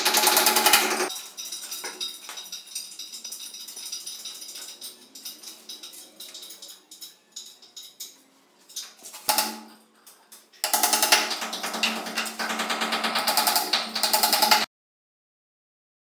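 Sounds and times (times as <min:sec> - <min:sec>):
hammer tapping nails: 0:10.6 - 0:14.7.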